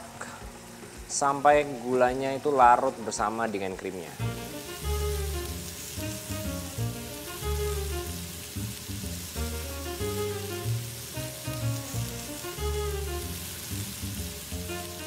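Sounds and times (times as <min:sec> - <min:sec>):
sauce sizzling and bubbling: 0:03.9 - 0:15.0
background music with bass line: 0:04.2 - 0:15.0.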